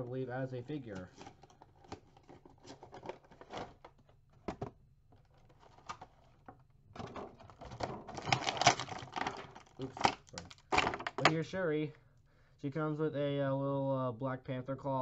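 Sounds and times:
plastic packaging crinkling: 0:00.9 - 0:04.1, 0:05.2 - 0:11.4.

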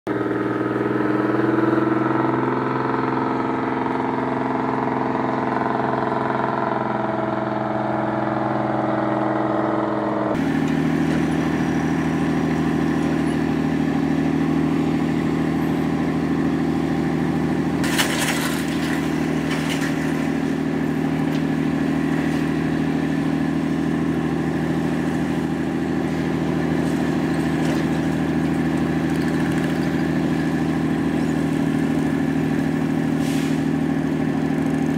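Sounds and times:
ship's diesel engine drone: 0:00.1 - 0:18.0.

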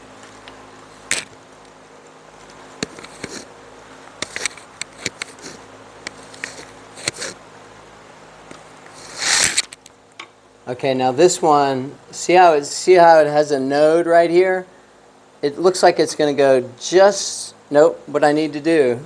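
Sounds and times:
light clicks and taps of cane: 0:04.2 - 0:07.2
rustling scrape: 0:08.9 - 0:09.8.

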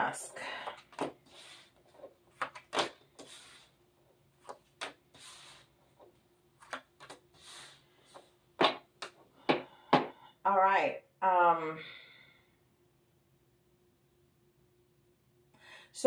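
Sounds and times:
cards swishing across table: 0:00.9 - 0:03.8, 0:04.4 - 0:08.8.

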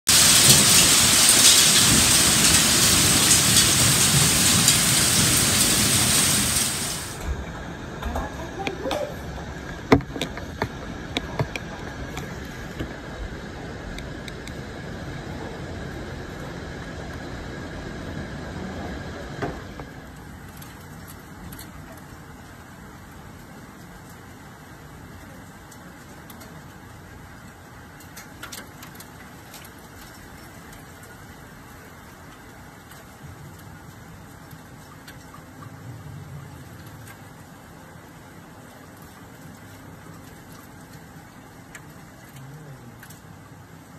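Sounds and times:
louder single hail hits: 0:00.1 - 0:07.4
hailstones pelting the ground: 0:00.1 - 0:13.0, 0:19.9 - 0:43.9.

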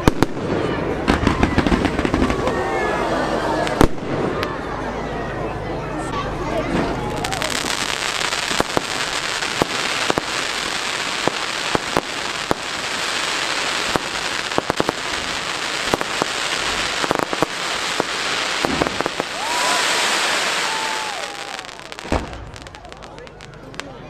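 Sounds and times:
firework bangs: 0:00.0 - 0:02.8, 0:03.6 - 0:04.7, 0:06.7 - 0:24.0
fireworks crackling: 0:00.0 - 0:03.0, 0:03.6 - 0:04.7, 0:06.6 - 0:24.0
firework hiss: 0:07.2 - 0:23.8.

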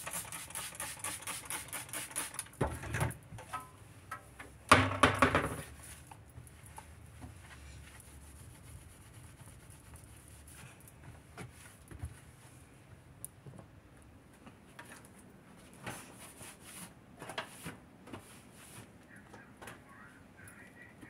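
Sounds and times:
cloth wiping counter: 0:06.8 - 0:12.6, 0:15.6 - 0:20.1.

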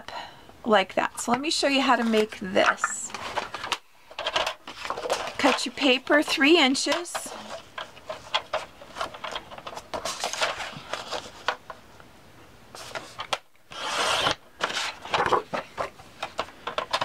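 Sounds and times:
paper rustling: 0:07.3 - 0:11.7.

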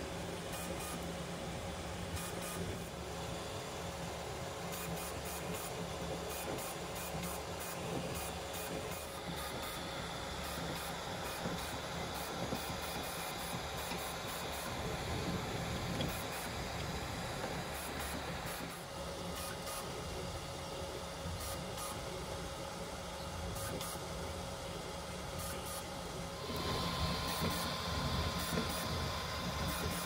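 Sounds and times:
fans hissing: 0:00.0 - 0:20.2, 0:24.9 - 0:30.0
motors whirring: 0:26.4 - 0:30.0.

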